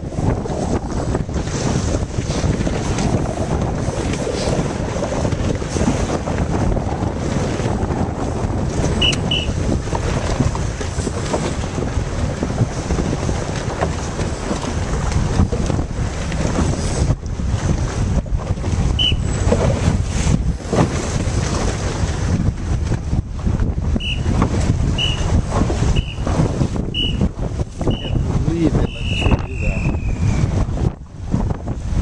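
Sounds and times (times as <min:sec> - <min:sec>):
choppy water: 0:00.0 - 0:32.0
wind buffeting microphone: 0:00.0 - 0:32.0
short high beeps: 0:09.0 - 0:09.6.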